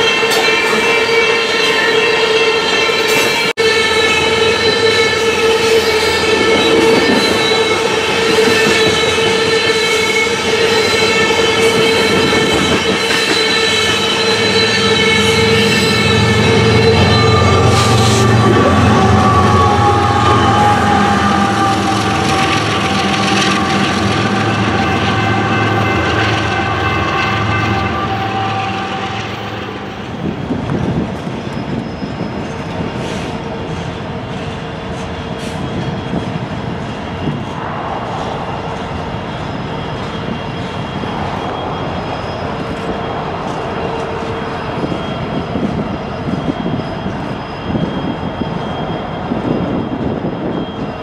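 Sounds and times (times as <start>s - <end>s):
freight train passing: 0.0s - 51.0s
rail cars clanking: 0.0s - 51.0s
rail cars rumbling: 0.0s - 51.0s
locomotive engine hum: 13.6s - 31.4s.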